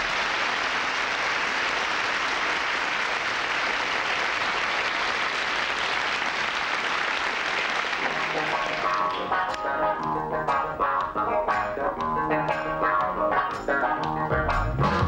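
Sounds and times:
audience applauding: 0:00.0 - 0:10.2.

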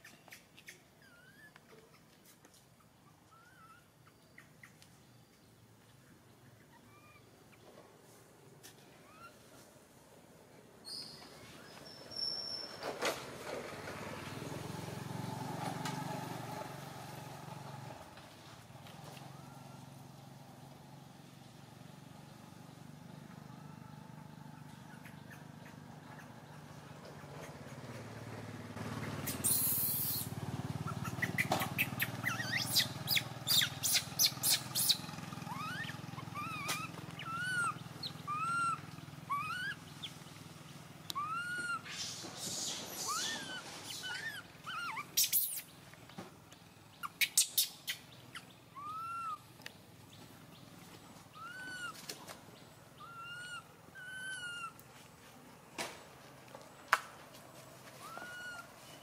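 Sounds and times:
infant monkey crying: 0:01.0 - 0:01.6, 0:03.0 - 0:04.1, 0:06.7 - 0:07.3, 0:09.0 - 0:09.4, 0:29.2 - 0:40.0, 0:41.1 - 0:45.6, 0:47.0 - 0:49.5, 0:51.3 - 0:52.1, 0:53.0 - 0:54.8, 0:58.0 - 0:58.8.

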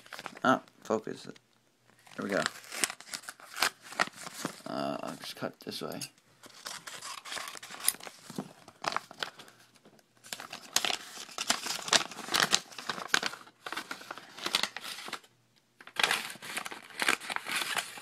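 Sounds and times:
paper envelope tearing: 0:02.0 - 0:04.8, 0:10.2 - 0:18.0.

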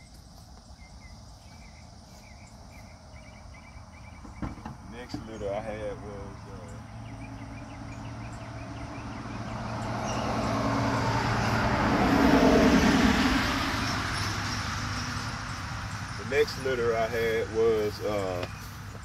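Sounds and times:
car driving past: 0:05.0 - 0:19.0.

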